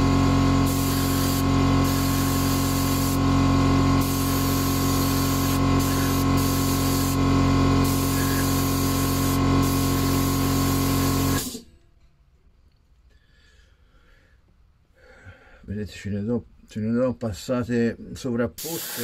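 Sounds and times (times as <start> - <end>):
airbrush spraying hiss: 0.6 - 3.3, 4.0 - 11.6, 18.6 - 19.0.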